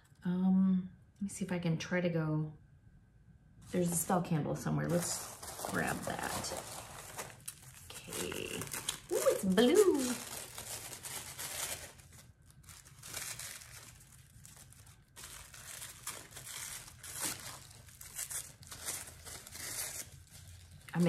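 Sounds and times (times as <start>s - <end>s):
paper crinkling and rustling: 4.9s - 21.0s.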